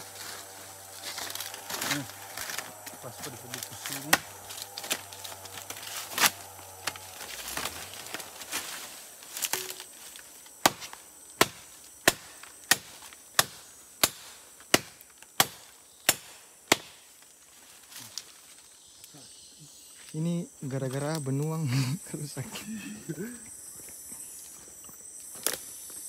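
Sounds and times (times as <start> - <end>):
machete chopping wood: 3.6 - 7.7, 10.6 - 17.1.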